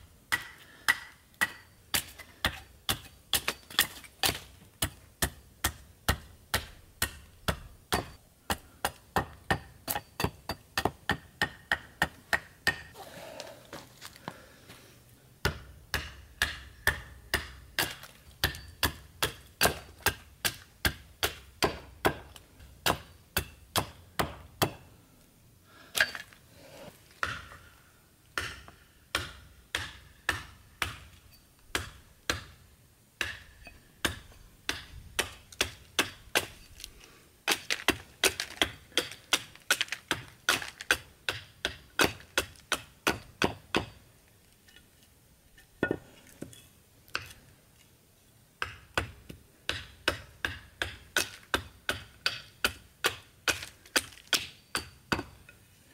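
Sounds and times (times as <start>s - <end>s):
hatchet chopping wood: 0.3s - 13.0s, 15.4s - 24.9s, 27.2s - 27.7s, 28.3s - 32.6s, 33.2s - 36.6s, 37.5s - 44.0s, 48.6s - 55.5s.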